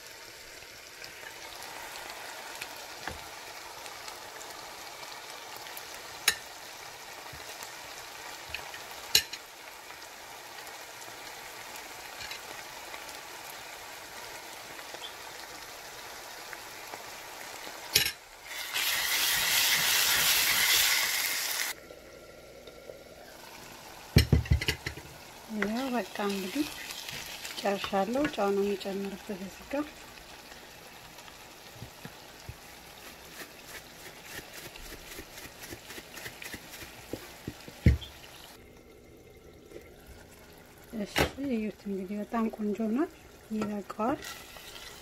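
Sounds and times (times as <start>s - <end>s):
sauce sizzling in saucepan: 0.0s - 45.0s
loud sizzling hiss: 8.4s - 21.8s.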